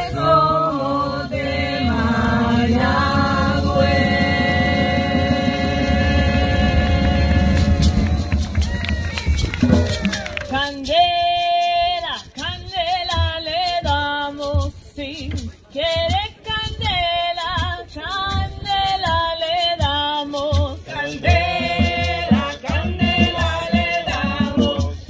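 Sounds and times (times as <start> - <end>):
women singing together: 0.0 - 8.4, 15.8 - 25.0
hand drum strokes: 0.0 - 25.0.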